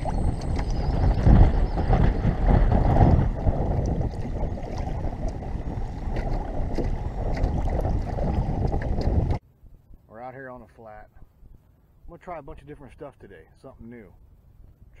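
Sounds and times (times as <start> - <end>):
water slapping against boat hull: 0.0 - 9.4
wind buffeting microphone: 0.0 - 10.0
small splashes and knocks: 6.0 - 9.4.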